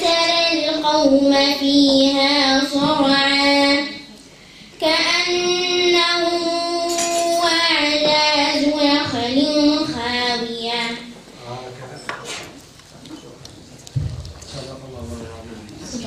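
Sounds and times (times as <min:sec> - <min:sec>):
girl chanting melodic recitation: 0:00.0 - 0:04.1, 0:04.7 - 0:11.2.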